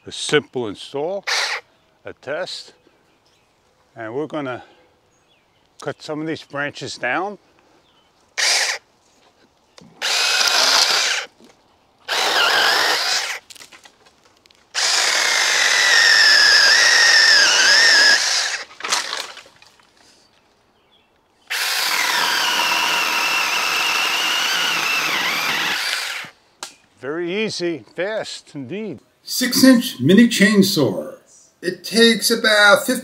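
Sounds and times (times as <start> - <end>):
cordless chainsaw cutting branches: 8.4 - 8.8, 10.0 - 11.4, 12.0 - 13.7, 14.7 - 19.5, 21.5 - 26.4.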